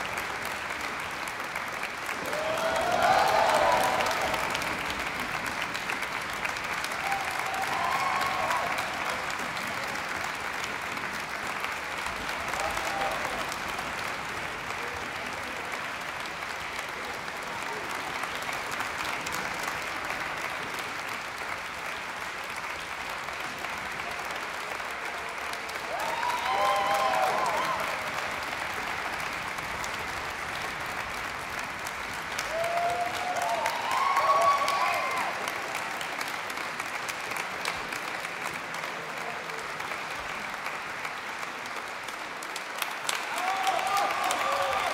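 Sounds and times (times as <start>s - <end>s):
audience applauding: 0.0s - 44.9s
shouted cheers: 2.1s - 4.8s, 6.8s - 9.3s, 12.4s - 13.6s, 25.8s - 28.3s, 32.4s - 35.8s, 43.1s - 44.9s.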